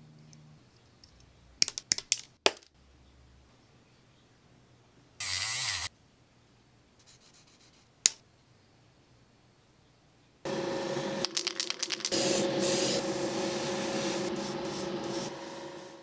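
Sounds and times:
sharp clicks of small parts: 1.0 - 2.7, 11.2 - 12.2.

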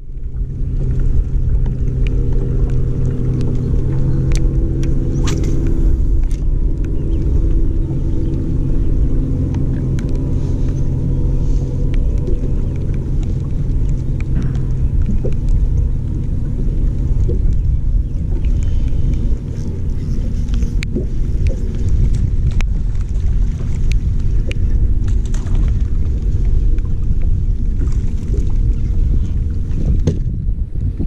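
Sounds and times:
electric trolling motor humming: 0.0 - 30.0
faint clicks: 1.5 - 7.6.

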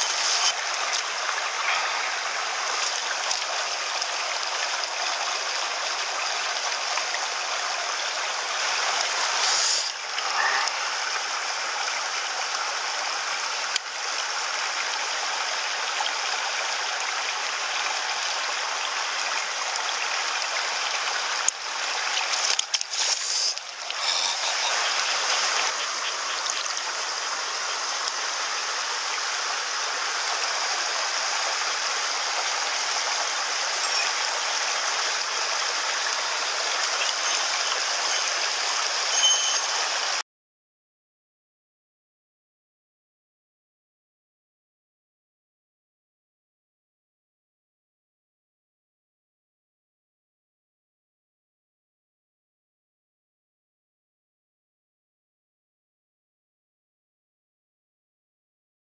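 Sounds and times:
stream rushing over rocks: 0.0 - 40.2.

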